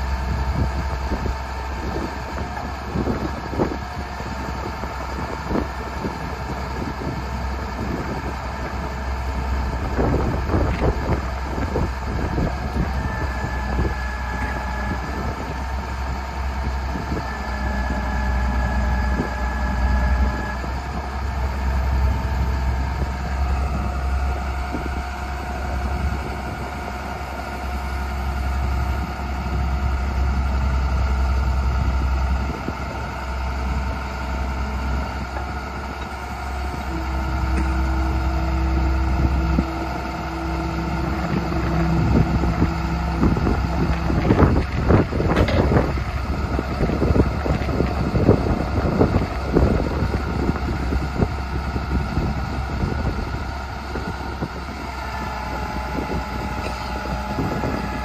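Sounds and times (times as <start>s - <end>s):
diesel truck engine running: 0.0s - 58.0s
whining tones: 33.9s - 52.1s.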